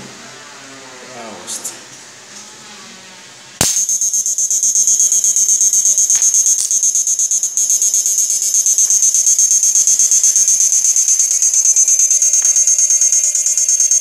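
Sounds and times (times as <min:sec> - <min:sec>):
high-pitched electric arc buzz: 0:03.6 - 0:14.0
sharp electric snaps: 0:03.6 - 0:14.0.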